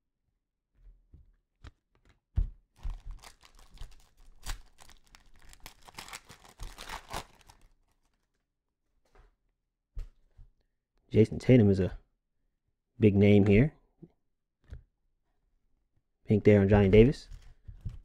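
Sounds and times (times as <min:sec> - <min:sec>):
wrapper tearing and crinkling: 0:02.8 - 0:08.3.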